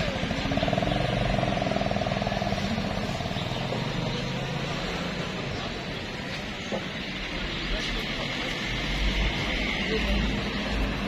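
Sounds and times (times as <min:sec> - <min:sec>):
motorcycle engine running: 0:00.0 - 0:05.2.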